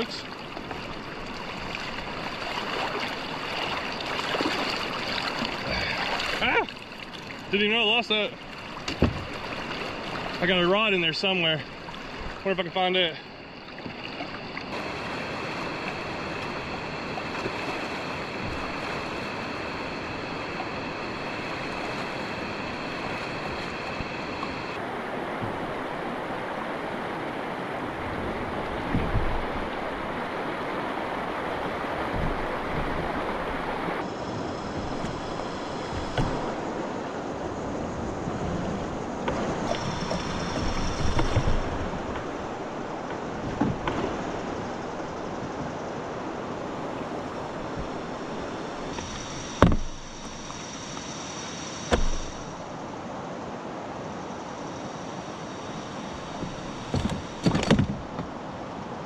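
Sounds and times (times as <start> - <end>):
river water rushing over rocks: 0.0 - 13.4, 14.0 - 45.2
loud thumps: 49.6 - 50.0, 51.9 - 52.4.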